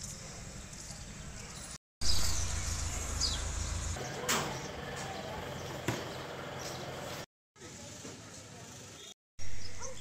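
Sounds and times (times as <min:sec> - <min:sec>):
falling bird chirp: 0:00.0 - 0:07.0.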